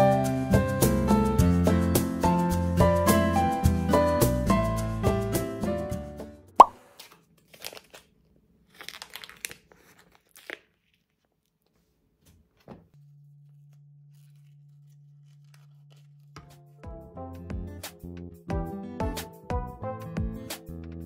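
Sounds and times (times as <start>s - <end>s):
plastic packaging crinkling: 6.8s - 11.8s, 14.1s - 16.4s.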